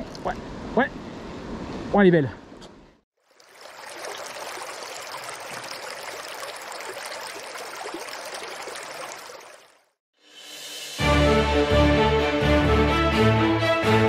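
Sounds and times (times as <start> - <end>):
stream water rushing: 3.2 - 10.0.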